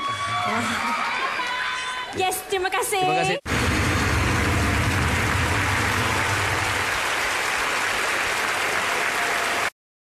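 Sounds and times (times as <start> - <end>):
low rumble: 3.5 - 6.8
audience applauding: 3.5 - 9.8.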